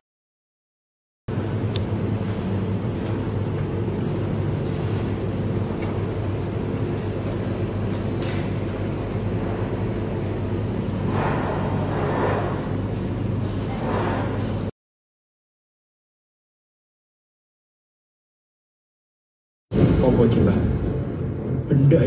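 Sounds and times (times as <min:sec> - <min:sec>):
restaurant background hum: 0:01.3 - 0:14.7.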